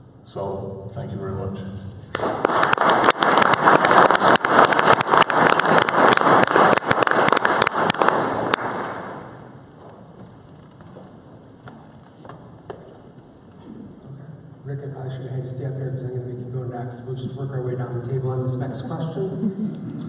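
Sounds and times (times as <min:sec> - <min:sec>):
audience applauding: 0:02.1 - 0:09.6.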